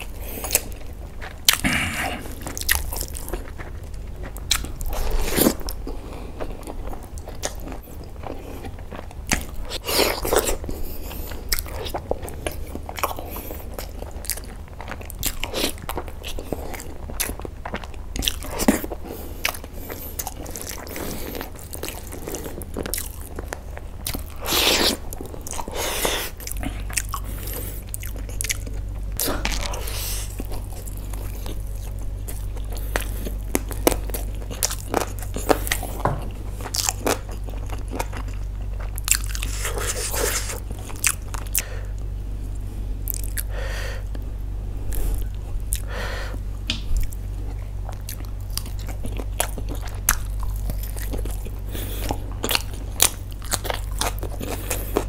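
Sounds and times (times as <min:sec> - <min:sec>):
person chewing food: 0:00.0 - 0:55.0.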